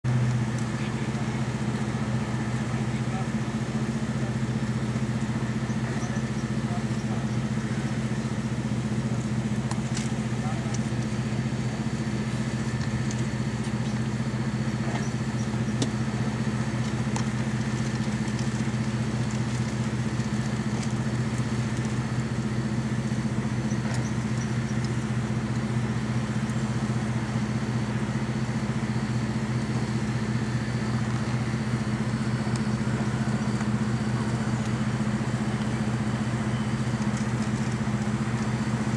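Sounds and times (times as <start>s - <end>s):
pumpjack motor low hum: 0.0s - 38.9s.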